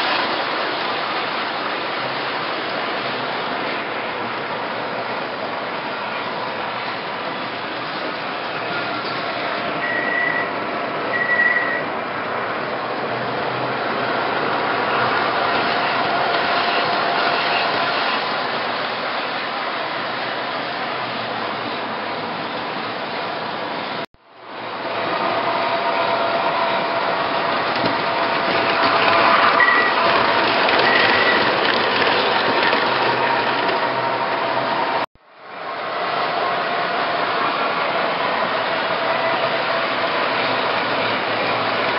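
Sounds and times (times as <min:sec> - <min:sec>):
model train rumbling on track: 0:00.0 - 0:41.9
short high beeps: 0:09.8 - 0:10.5, 0:11.1 - 0:11.9.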